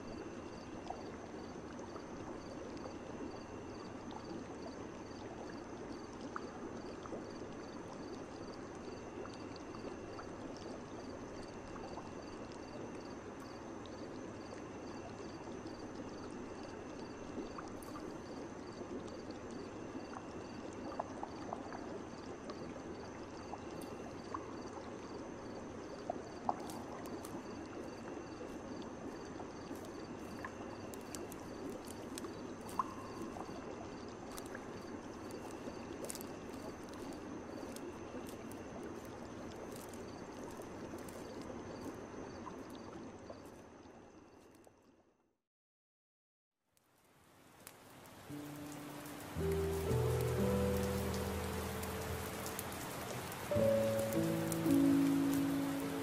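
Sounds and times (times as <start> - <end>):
night insects chirping: 0.0 - 44.7, 47.4 - 56.0
small drips: 0.0 - 44.9, 46.8 - 56.0
running water: 47.4 - 56.0.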